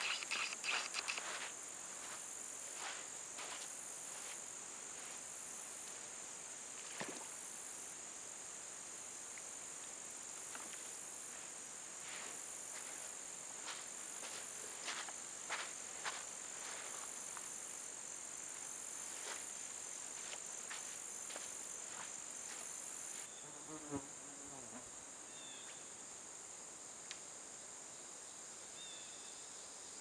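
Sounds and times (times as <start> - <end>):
sharp click: 0.0 - 1.4
footsteps on sand and gravel: 0.0 - 6.0, 11.3 - 17.6, 18.5 - 23.3
crickets chirring: 0.0 - 30.0.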